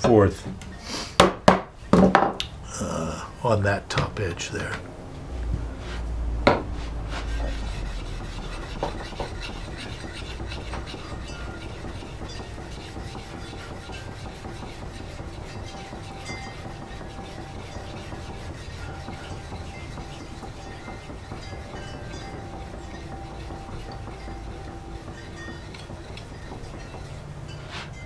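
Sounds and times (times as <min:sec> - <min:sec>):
sharpening stone rasping on hatchet: 0:07.1 - 0:28.0.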